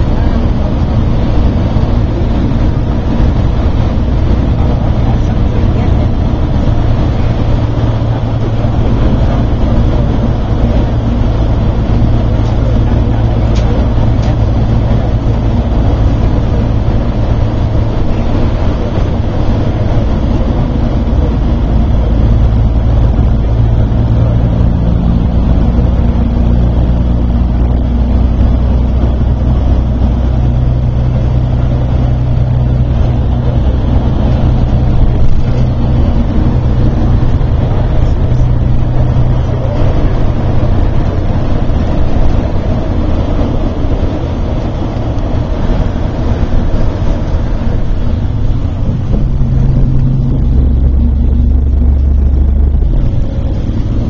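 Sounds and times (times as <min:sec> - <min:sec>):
bus engine and tyre drone: 0:00.0 - 0:54.0.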